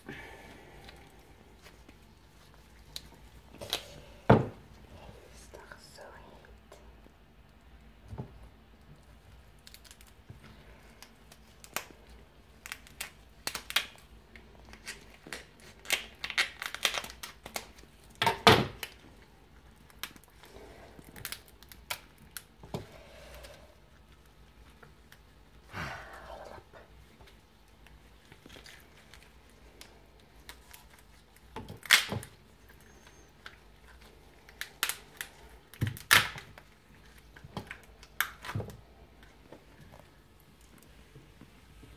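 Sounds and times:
shell cracking and crunching: 9.3s - 25.2s, 27.7s - 38.8s.

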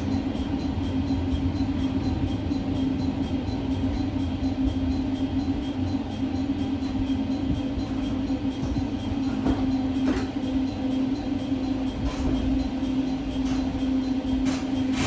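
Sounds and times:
electric train humming: 0.0s - 15.0s.

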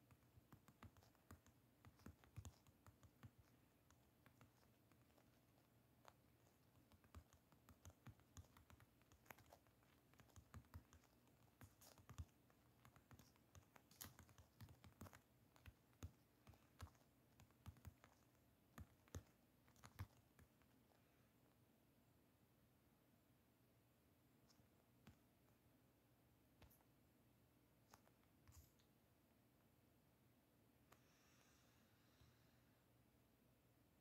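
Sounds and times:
typing taps on smartphone screen: 0.0s - 5.2s, 6.0s - 20.6s.

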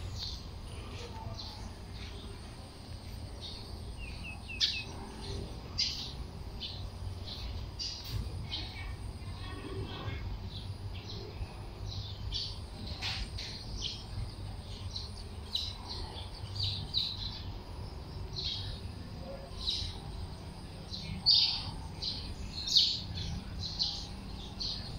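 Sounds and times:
small birds chirping: 0.0s - 24.9s.

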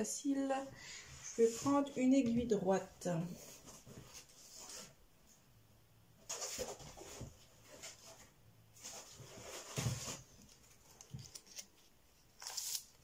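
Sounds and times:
fabric and knitting needles rustling: 0.0s - 5.0s.

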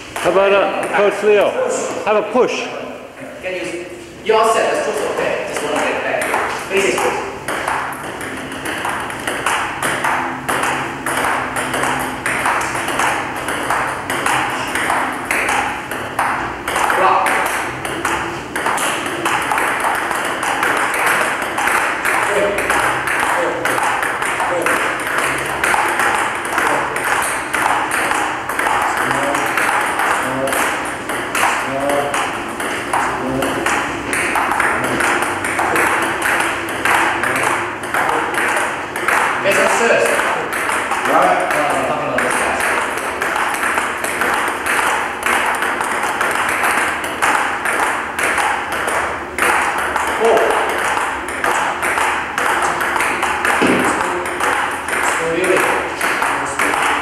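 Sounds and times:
ping pong ball hitting paddles: 0.0s - 2.2s, 3.8s - 57.0s
faint steady hum: 0.0s - 57.0s
ball bouncing on table: 5.0s - 57.0s.

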